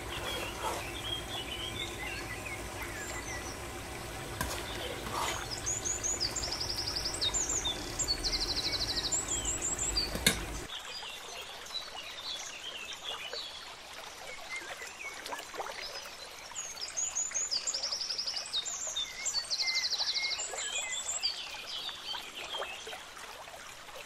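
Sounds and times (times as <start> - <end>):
small birds chirping: 0.0 - 10.7.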